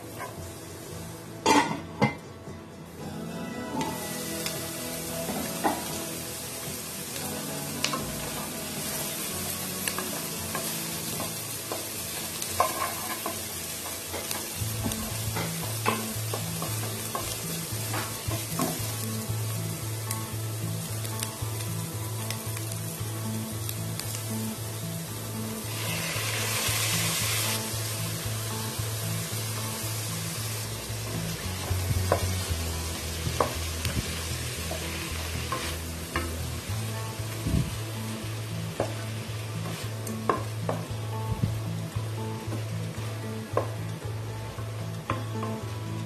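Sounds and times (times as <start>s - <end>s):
onions sizzling in oil: 0.0s - 1.8s, 3.8s - 46.0s
spatula tapping and scraping pan: 12.5s - 18.8s.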